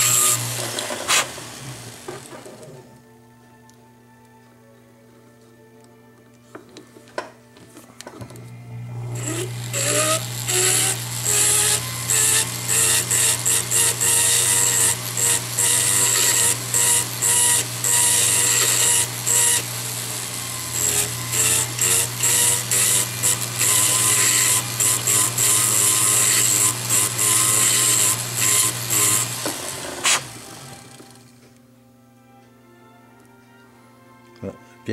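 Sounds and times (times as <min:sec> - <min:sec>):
rotary tool motor hum: 0:00.0 - 0:02.8, 0:08.8 - 0:31.4.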